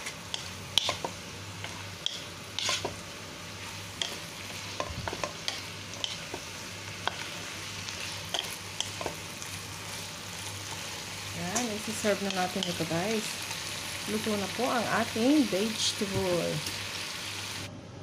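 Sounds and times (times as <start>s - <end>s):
wooden spatula scraping a pan: 0.0s - 3.0s
vegetables sizzling in a pan: 0.0s - 17.7s.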